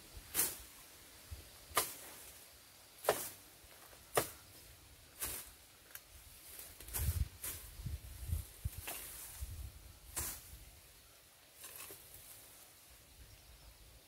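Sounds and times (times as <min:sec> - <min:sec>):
blade swishing through grass: 0:00.3 - 0:00.8, 0:01.7 - 0:02.4, 0:03.0 - 0:03.4, 0:05.2 - 0:05.6, 0:06.4 - 0:10.7.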